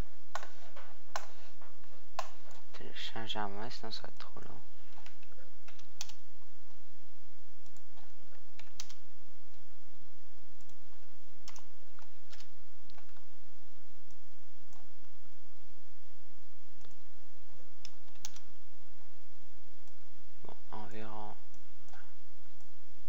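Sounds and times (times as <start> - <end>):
low steady hum: 0.0 - 23.0
mouse and keyboard clicks: 17.8 - 18.5.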